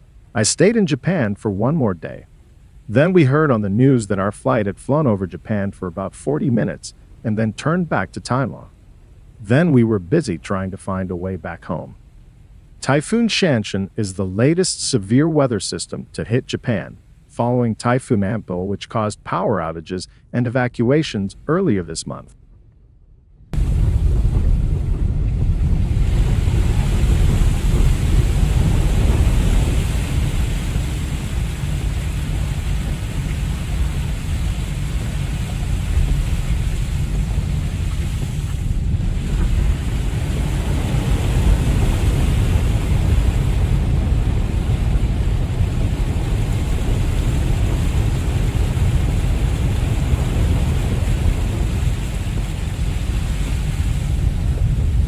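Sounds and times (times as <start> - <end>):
rain hissing on car roof: 23.6 - 55.0
tyres rumbling on wet road: 23.6 - 55.0.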